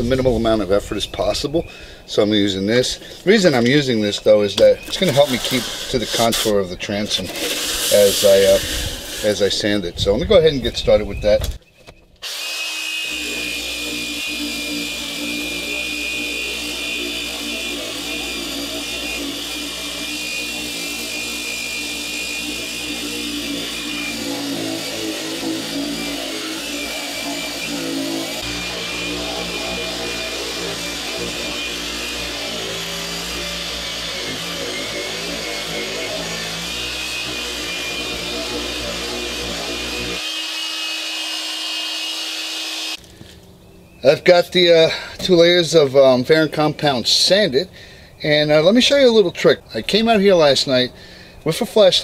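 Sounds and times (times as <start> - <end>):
electric sander running: 4.8 - 6.5, 7.3 - 9.5, 12.2 - 43.1.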